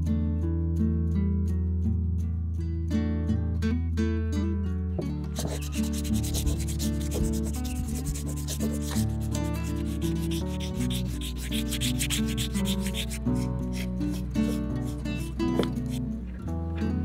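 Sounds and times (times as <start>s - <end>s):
sandpaper rubbing on metal: 5.4s - 16.0s.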